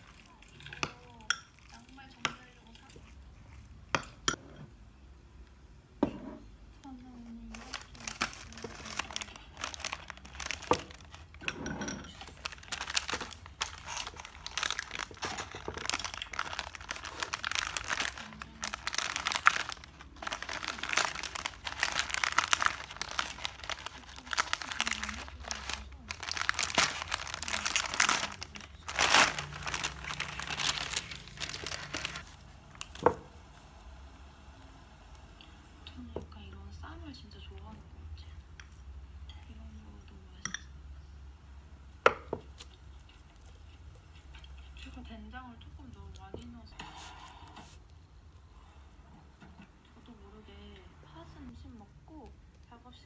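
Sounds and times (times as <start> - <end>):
plastic packet crinkling: 7.5 - 11.4, 12.1 - 33.1.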